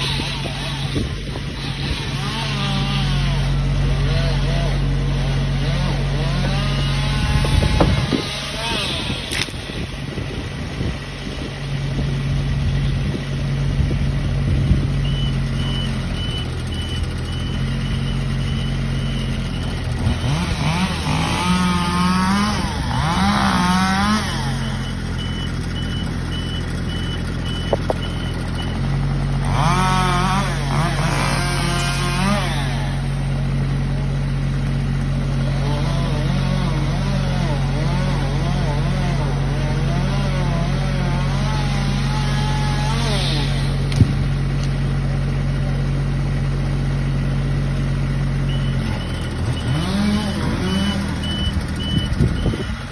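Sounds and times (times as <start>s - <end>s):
lift engine running: 0.0s - 39.9s, 41.1s - 52.9s
chainsaw revving: 0.0s - 52.9s
high alarm beeping: 24.6s - 28.8s, 50.6s - 52.8s.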